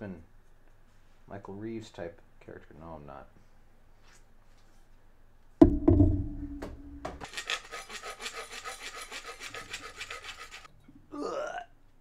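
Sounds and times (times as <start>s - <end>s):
wooden dowel knocking: 5.6s - 7.3s
hacksaw cutting wood: 7.2s - 10.7s.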